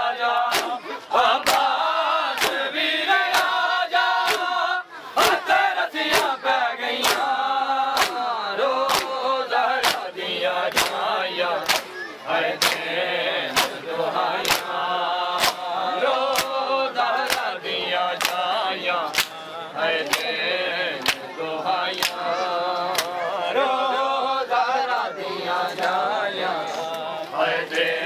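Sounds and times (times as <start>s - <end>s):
male voices chanting lament: 0.0s - 28.0s
men slapping bare chests: 0.2s - 20.4s, 21.0s - 21.3s, 21.9s - 23.2s, 25.7s - 28.0s.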